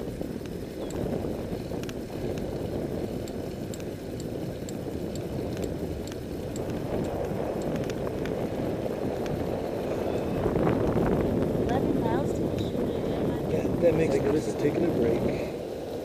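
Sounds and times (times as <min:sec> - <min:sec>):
bicycle clicks and rattles: 0:00.0 - 0:11.6
bicycle rolling rumble: 0:00.0 - 0:16.0.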